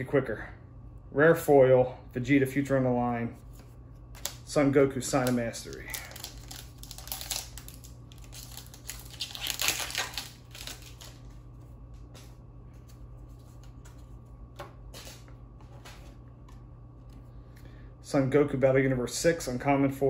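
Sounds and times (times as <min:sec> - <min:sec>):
foil pack crinkling and tearing: 0:04.2 - 0:11.4.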